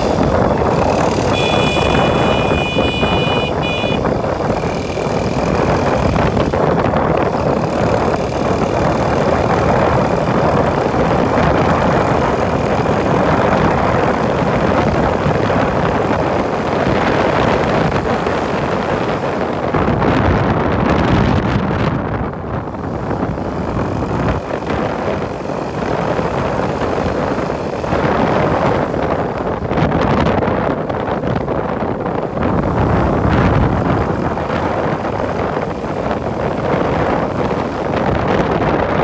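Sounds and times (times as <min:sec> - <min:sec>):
motorcycle engine running: 0:00.0 - 0:20.5
wind buffeting microphone: 0:00.0 - 0:39.0.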